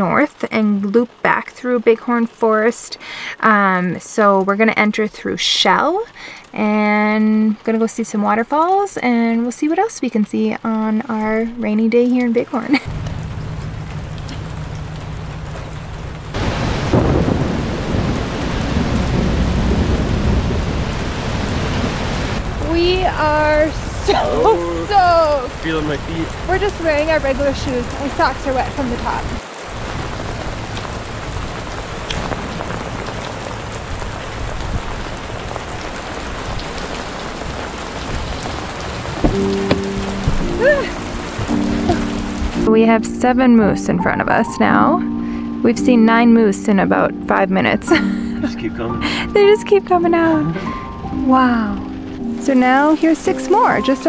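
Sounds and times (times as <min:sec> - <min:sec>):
heavy rain falling: 0:00.0 - 0:42.7, 0:47.7 - 0:54.0
deep low rumble: 0:12.9 - 0:24.1.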